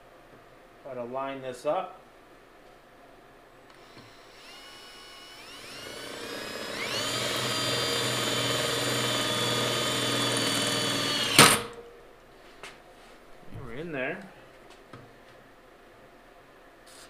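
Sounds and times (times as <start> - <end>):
cordless drill whining: 3.7 - 11.8.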